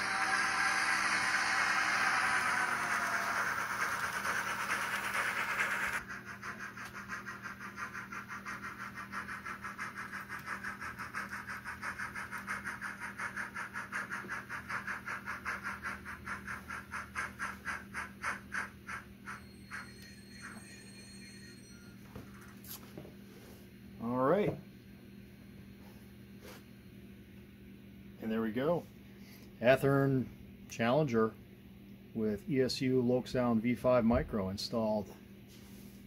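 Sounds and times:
model train steam chuffs: 0.0s - 20.8s.

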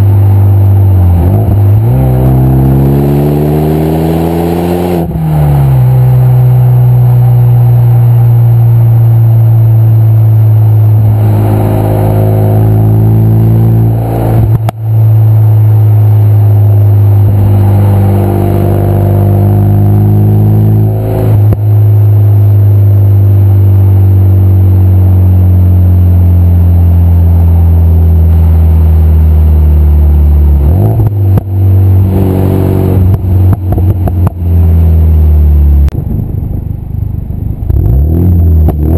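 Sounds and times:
car engine droning: 0.0s - 38.9s
exhaust pops and bangs: 33.0s - 34.5s.

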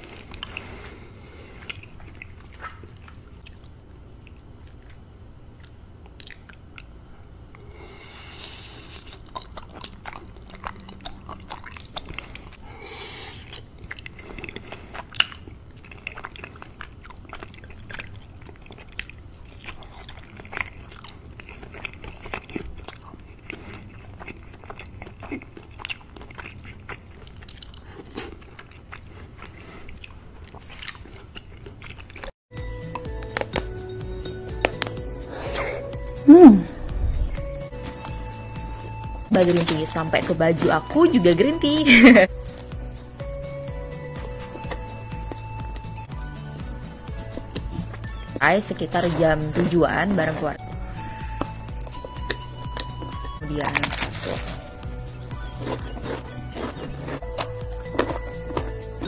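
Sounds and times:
person chewing: 0.0s - 41.2s, 42.0s - 59.0s
wet mouth clicks: 5.6s - 6.9s.

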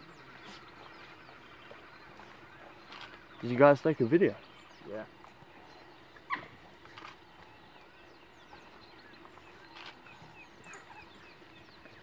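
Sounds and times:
wild dogs twittering: 5.8s - 7.2s, 9.8s - 11.5s.

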